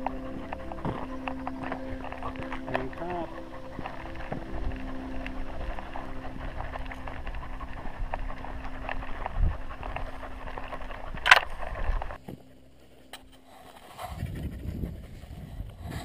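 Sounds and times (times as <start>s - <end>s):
low hush: 0.0s - 13.7s
camera handling rumble and rustle: 0.0s - 16.0s.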